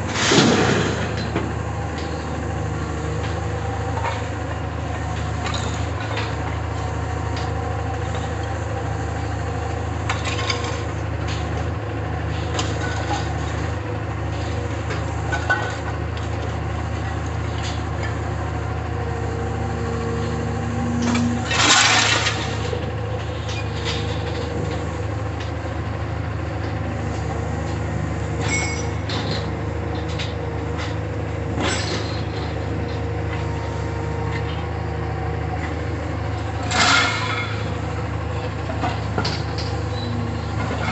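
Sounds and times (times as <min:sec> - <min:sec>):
diesel engine running: 0:00.0 - 0:40.9
scrap metal crashing into steel car: 0:00.1 - 0:01.4, 0:21.1 - 0:22.7
scrap metal clanking: 0:00.1 - 0:02.2, 0:20.2 - 0:25.0, 0:26.7 - 0:34.6, 0:36.6 - 0:37.7.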